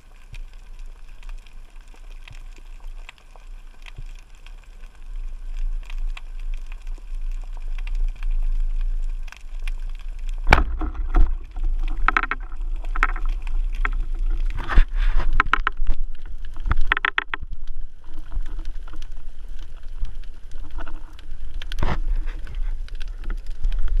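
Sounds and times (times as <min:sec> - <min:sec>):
low underwater rumble: 0:02.4 - 0:24.0
underwater clicks and knocks: 0:09.3 - 0:24.0.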